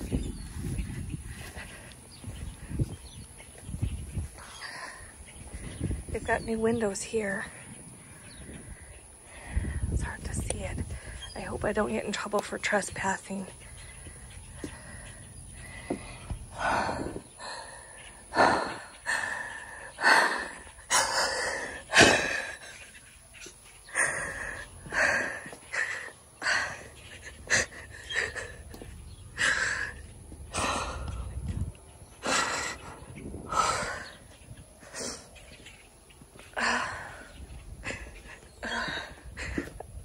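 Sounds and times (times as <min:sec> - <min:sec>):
person gasping breaths: 0:14.5 - 0:22.6.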